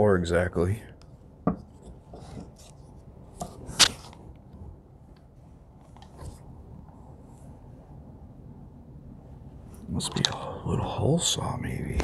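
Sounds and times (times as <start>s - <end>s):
wooden block knocking on bench: 1.4s - 1.7s.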